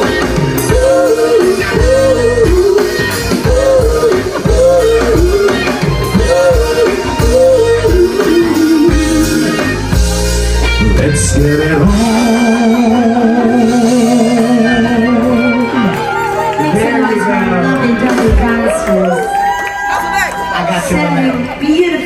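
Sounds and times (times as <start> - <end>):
woman singing: 0.0 - 9.7, 16.6 - 19.3
drums: 0.0 - 20.6
bass guitar: 0.0 - 22.0
electric guitar: 0.0 - 22.0.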